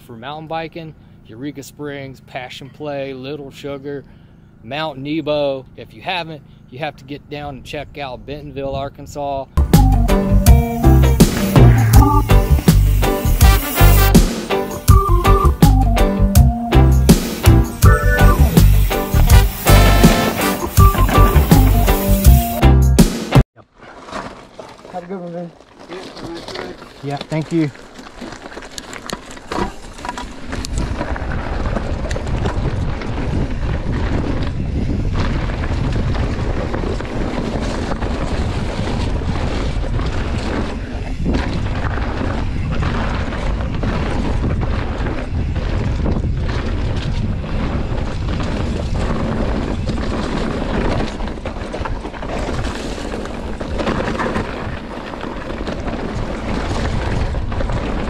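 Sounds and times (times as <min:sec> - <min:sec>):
bike tyre and frame rattle: 0:10.7 - 0:14.8, 0:17.3 - 0:22.6, 0:23.6 - 0:58.0
wind buffeting microphone: 0:29.9 - 0:58.0.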